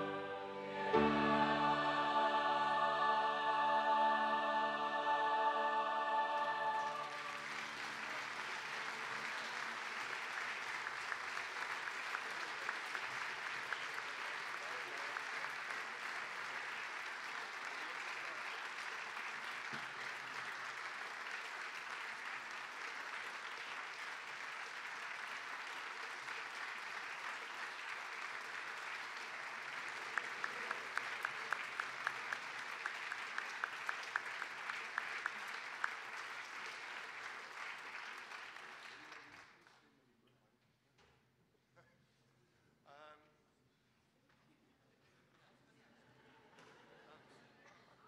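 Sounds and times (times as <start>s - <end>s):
congregation applauding: 0.0s - 39.9s
evenly spaced claps: 6.4s - 39.4s.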